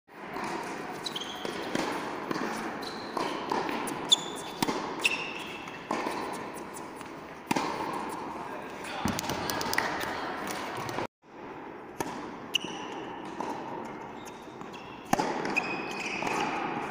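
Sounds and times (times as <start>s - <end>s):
racket striking tennis ball: 0.2s - 8.4s, 9.0s - 16.9s
tennis ball bouncing: 0.2s - 8.4s, 9.0s - 16.9s
shoes squeaking on court: 0.2s - 9.2s, 12.4s - 16.9s.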